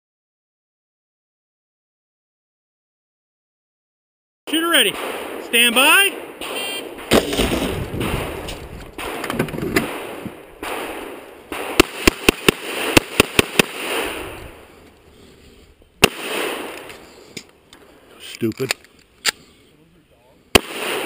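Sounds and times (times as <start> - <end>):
pistol shots: 4.8 - 14.6, 16.0 - 17.0, 20.5 - 21.0.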